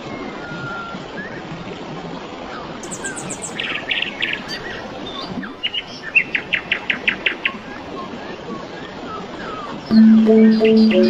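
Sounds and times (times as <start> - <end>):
flowing water: 0.0 - 11.0
birds chirping: 9.9 - 11.0.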